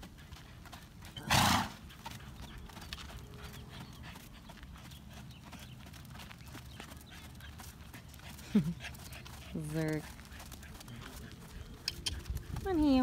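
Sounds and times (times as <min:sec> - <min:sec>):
horse hoofbeats on sand: 0:00.0 - 0:13.0
horse snorting: 0:01.1 - 0:01.9.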